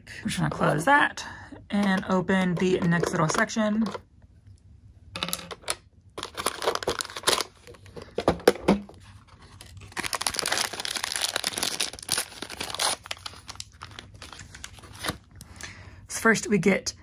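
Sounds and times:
plastic packaging clicks and knocks: 0:05.2 - 0:09.0
wrapping crinkling and tearing: 0:06.2 - 0:07.9, 0:09.2 - 0:15.4.

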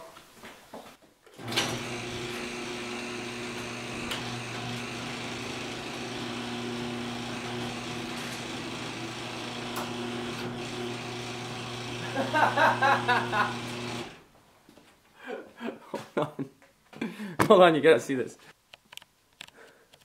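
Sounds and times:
garage door opener running: 0:01.4 - 0:14.3.

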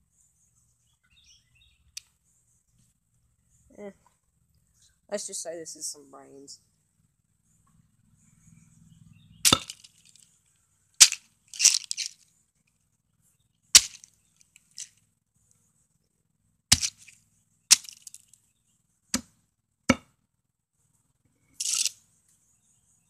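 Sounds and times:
hatchet chopping pine cone: 0:09.5 - 0:09.9, 0:13.8 - 0:14.1, 0:16.7 - 0:17.1, 0:17.7 - 0:18.1, 0:19.2 - 0:20.2.

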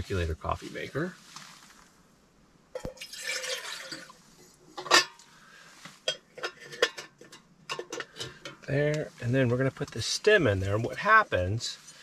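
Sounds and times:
water pouring into metal pot: 0:02.8 - 0:04.2
metal clank: 0:04.8 - 0:05.2, 0:06.1 - 0:08.7
light metallic clicks and clinks: 0:06.0 - 0:09.0.

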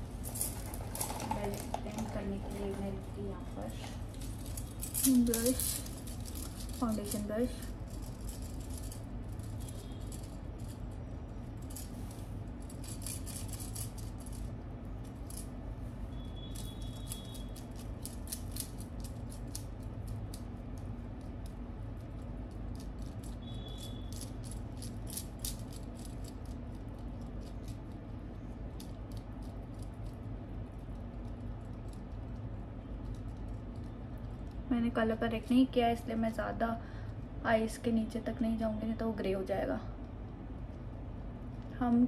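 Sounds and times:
steady low hum: 0:00.0 - 0:42.0
bangles clinking and jangling: 0:00.2 - 0:02.5, 0:04.0 - 0:15.6.

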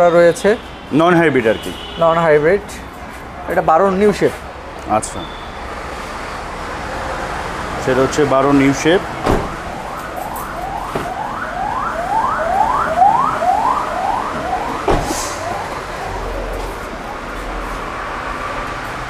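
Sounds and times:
emergency vehicle siren: 0:04.9 - 0:19.0.

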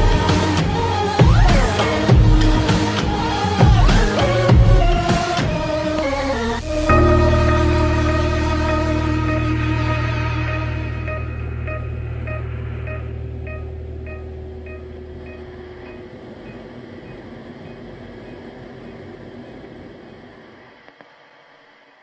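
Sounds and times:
sustained bass: 0:00.0 - 0:18.2
steady rushing noise: 0:00.0 - 0:22.0
high note echoing: 0:06.6 - 0:16.8.

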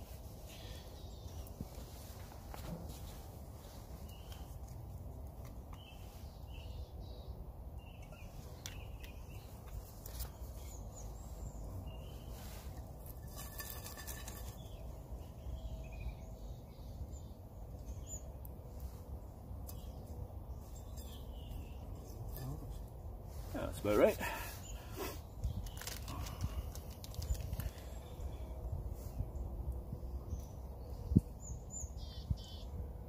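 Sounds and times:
small birds chirping: 0:00.0 - 0:32.9
clicks and crackle: 0:25.4 - 0:27.8.

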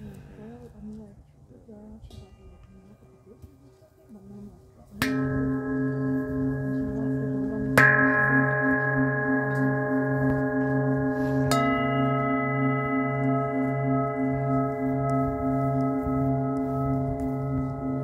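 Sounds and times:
metal singing bowls ringing: 0:05.0 - 0:18.0.

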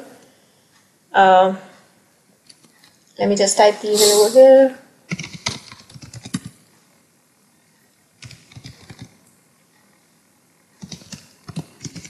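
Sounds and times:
typing on a keyboard: 0:05.1 - 0:06.6, 0:08.2 - 0:09.2, 0:10.8 - 0:12.0.

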